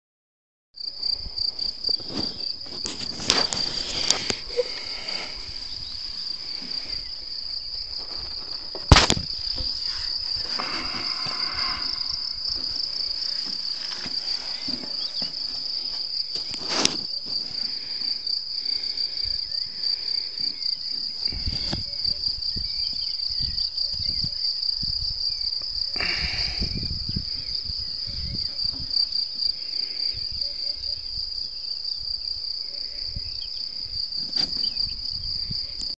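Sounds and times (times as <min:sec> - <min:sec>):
insects trilling: 0:00.8 - 0:35.9
brief rustling: 0:02.0 - 0:05.3, 0:16.4 - 0:17.4.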